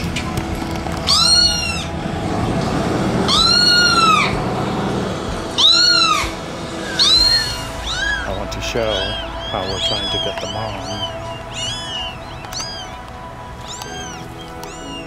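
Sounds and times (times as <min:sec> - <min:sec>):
kitten meows through a speaker: 0:01.1 - 0:01.9, 0:03.3 - 0:04.3, 0:09.0 - 0:13.0, 0:13.7 - 0:15.0.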